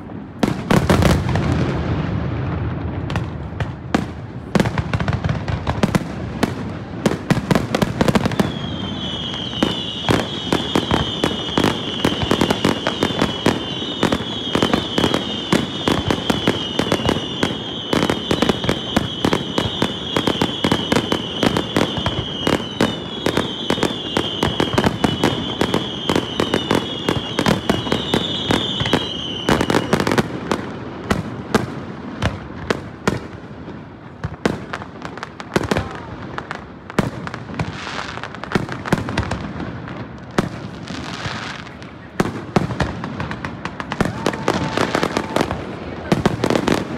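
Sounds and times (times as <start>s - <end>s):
deep fireworks booms: 0.0s - 46.9s
fireworks crackling and popping: 0.0s - 46.9s
fireworks whistles: 7.5s - 31.3s, 40.3s - 46.9s.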